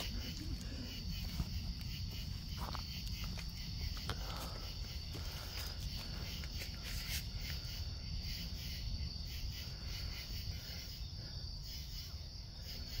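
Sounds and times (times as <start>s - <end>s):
footsteps on dry leaves: 0.0s - 7.6s
insects chirring: 0.0s - 13.0s.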